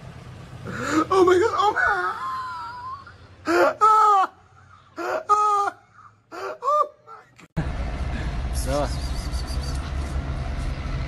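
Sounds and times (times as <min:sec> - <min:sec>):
person shrieking with laughter: 0:00.8 - 0:07.3.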